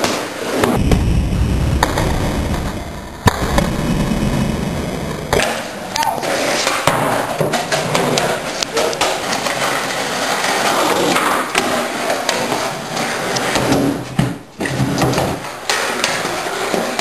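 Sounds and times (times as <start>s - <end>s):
skateboard wheels rolling on concrete: 0.0s - 0.8s, 5.1s - 17.0s
skateboard clacks and knocks: 5.4s - 17.0s.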